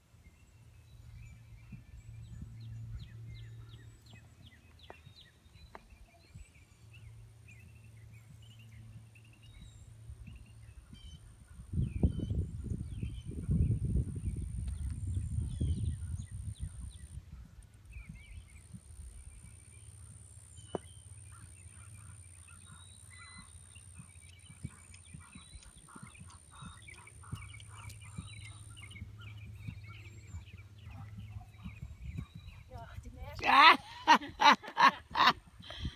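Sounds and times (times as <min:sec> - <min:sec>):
small birds chirping: 0:00.2 - 0:35.9
wind buffeting microphone: 0:09.5 - 0:19.5, 0:24.0 - 0:33.5.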